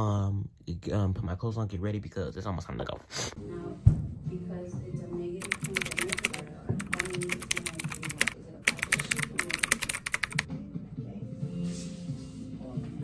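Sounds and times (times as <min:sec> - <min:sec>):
keyboard typing clicks: 0:05.4 - 0:10.5.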